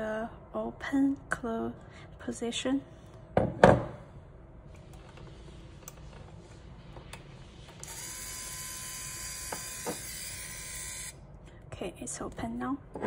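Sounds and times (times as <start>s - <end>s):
valve actuator motor whine: 7.8s - 11.2s.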